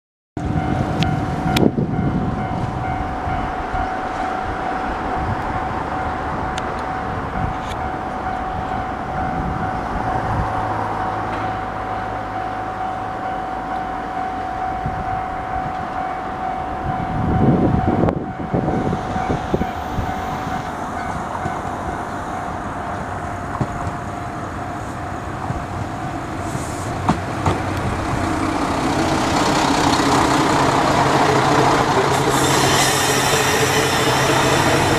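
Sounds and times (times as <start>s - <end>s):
steady high tone: 0.4s - 27.0s, 27.8s - 34.9s
train engine and wheels on rails: 0.4s - 34.9s.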